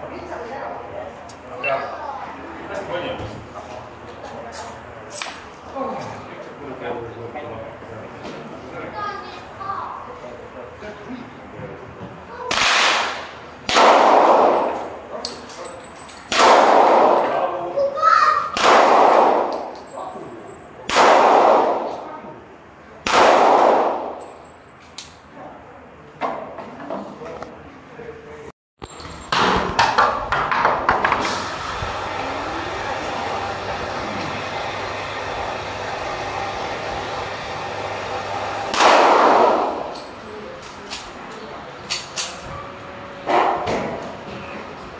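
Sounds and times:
handgun shots with echo: 12.5s - 14.8s, 16.3s - 17.4s, 18.6s - 19.7s, 20.9s - 21.9s, 23.0s - 24.2s, 38.7s - 40.0s.

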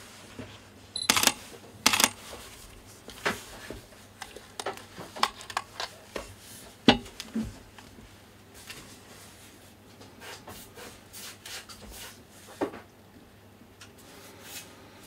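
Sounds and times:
camera lens clicks and knocks: 1.1s - 2.2s.

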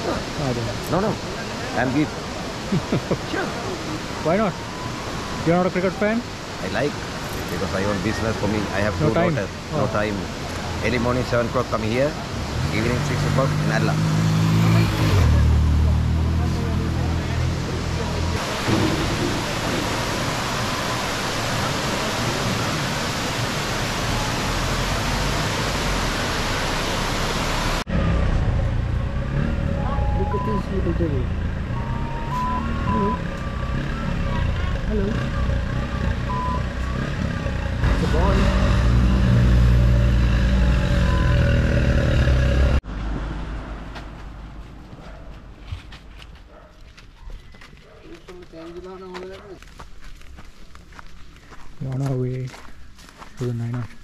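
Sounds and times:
waterfall rushing: 0.0s - 27.9s
vehicle engine running loudly: 27.8s - 42.8s.

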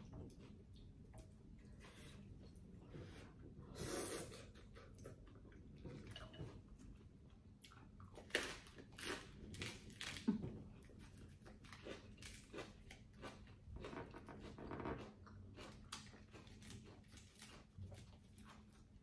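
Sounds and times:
chewing and biting mouth sounds: 7.4s - 19.0s.

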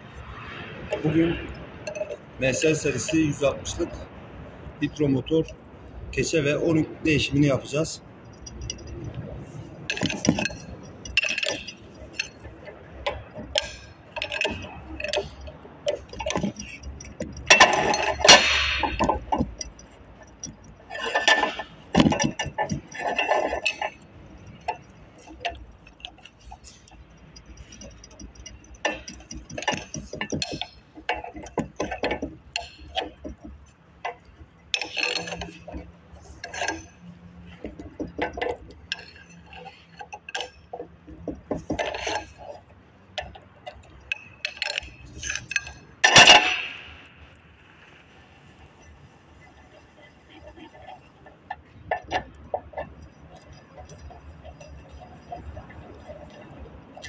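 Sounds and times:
metal tools clinking on steel housing: 0.9s - 4.0s, 6.2s - 49.6s
socket wrench turning bolts: 8.2s - 49.1s.

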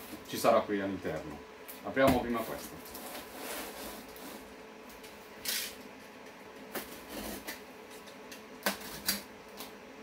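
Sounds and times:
cardboard scraping rustle: 2.3s - 4.5s.

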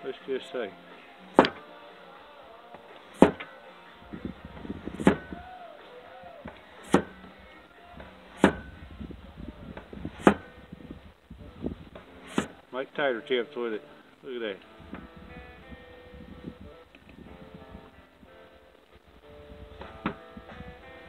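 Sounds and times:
cleaver chopping onto board: 1.4s - 1.6s, 3.2s - 3.5s, 6.8s - 7.2s, 8.4s - 8.7s, 10.2s - 10.5s.

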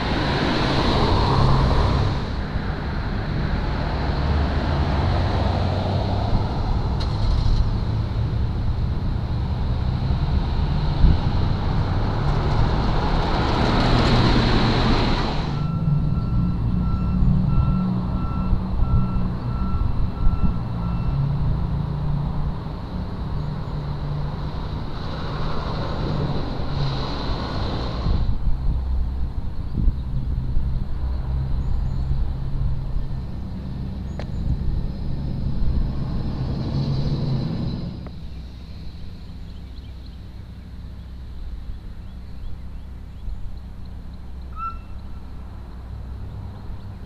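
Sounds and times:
street traffic passing: 0.0s - 47.0s
constant low rumble: 5.4s - 14.2s, 27.7s - 47.0s
vehicle back-up alarm beeping: 15.4s - 21.4s, 44.5s - 45.3s.

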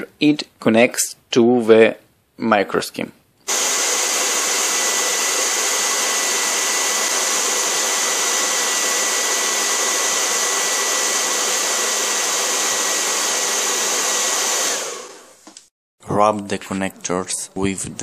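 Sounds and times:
hair dryer blowing: 3.5s - 15.5s.

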